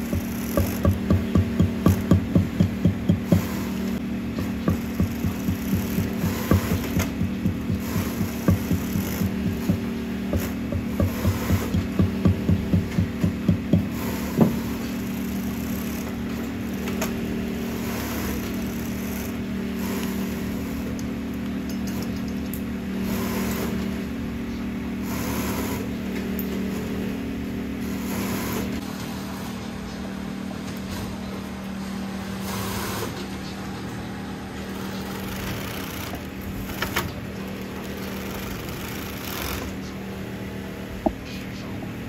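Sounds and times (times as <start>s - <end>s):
workshop machinery hum: 0.0s - 42.0s.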